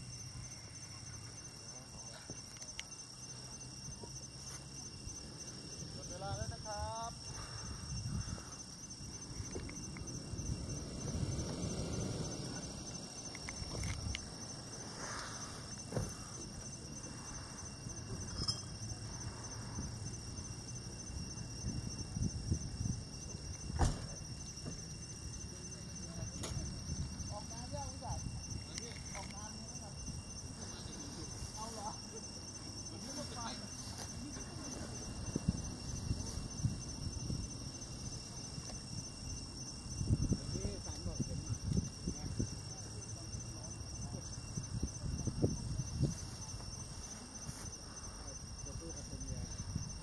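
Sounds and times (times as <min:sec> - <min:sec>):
insects chirping trill: 0:00.0 - 0:50.0.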